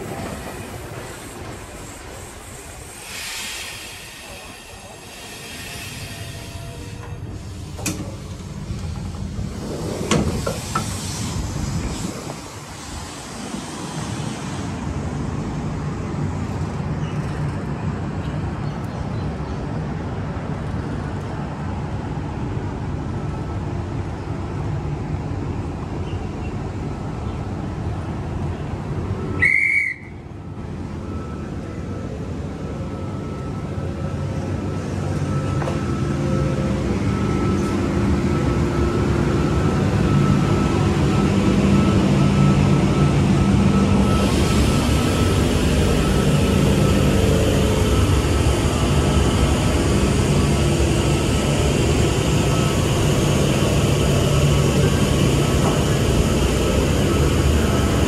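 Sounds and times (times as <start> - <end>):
high whistle-like tone: 29.3 - 30.2.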